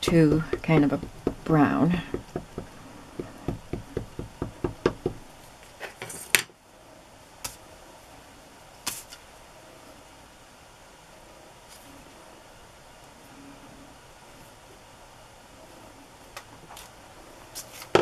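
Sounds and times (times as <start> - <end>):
ink pad knocking on stamp: 0.0 - 5.2.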